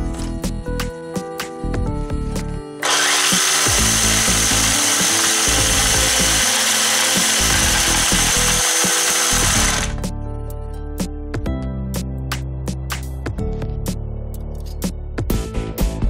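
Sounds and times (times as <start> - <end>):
electric motor whirring with whine: 2.8 - 10.0.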